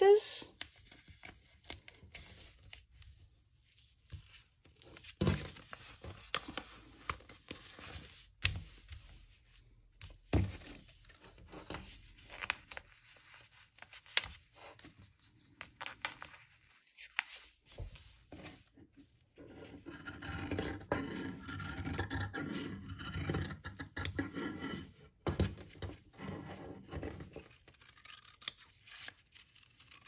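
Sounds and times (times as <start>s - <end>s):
scissors snipping fabric: 27.4s - 28.7s.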